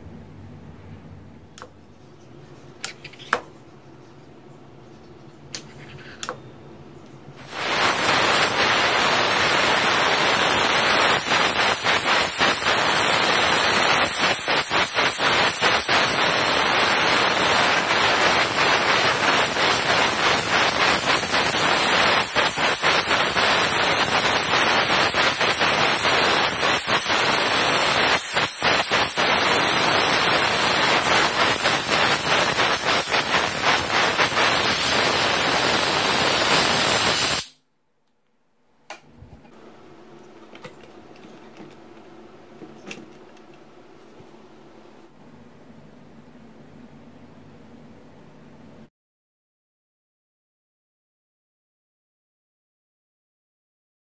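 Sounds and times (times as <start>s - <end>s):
compressed air hissing: 7.4s - 37.6s.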